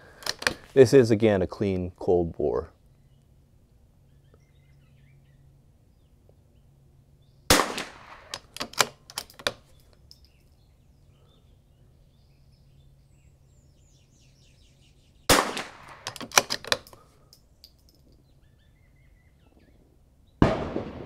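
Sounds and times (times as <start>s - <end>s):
rifle bolt metallic clicks: 0.1s - 0.8s, 7.6s - 10.5s, 15.4s - 18.2s
rifle shot: 7.5s - 8.9s, 15.3s - 16.6s, 20.4s - 21.0s.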